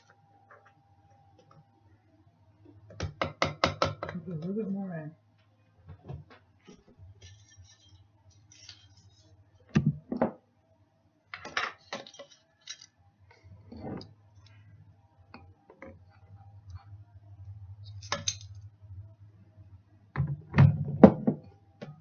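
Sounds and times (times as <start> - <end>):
low steady hum: 4.0 - 22.0
utensils knocking and clinking: 17.9 - 18.6.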